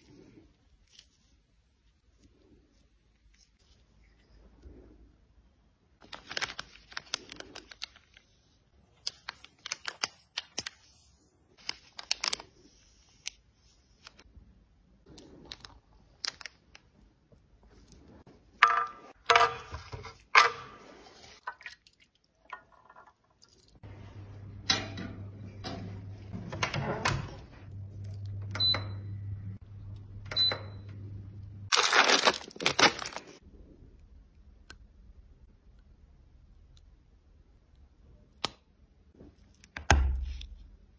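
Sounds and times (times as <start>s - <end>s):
appliance low electric hum: 23.9s - 31.7s.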